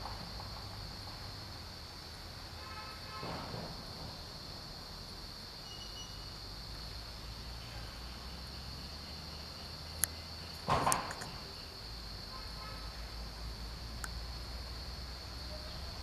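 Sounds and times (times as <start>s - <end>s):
insects droning: 0.0s - 16.0s
sharp click: 10.0s - 11.4s.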